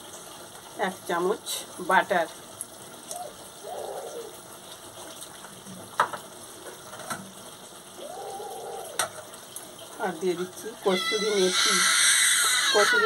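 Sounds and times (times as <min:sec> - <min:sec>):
curry simmering and sizzling: 0:00.0 - 0:13.0
small child squealing: 0:08.0 - 0:09.0, 0:10.8 - 0:13.0.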